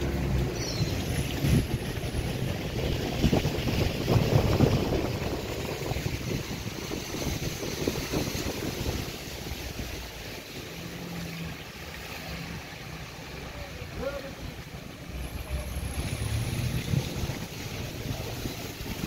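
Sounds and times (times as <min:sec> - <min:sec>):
wind buffeting microphone: 0:00.0 - 0:10.8, 0:15.7 - 0:19.0.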